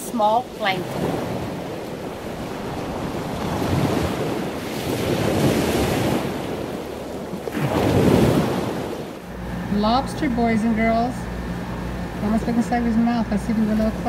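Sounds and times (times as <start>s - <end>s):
rushing water like surf: 0.0s - 9.4s.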